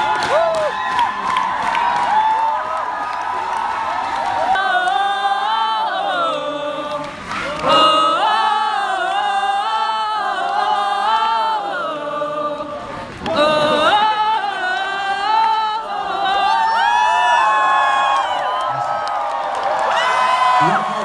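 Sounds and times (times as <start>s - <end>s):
crowd singing together: 3.9s - 17.6s.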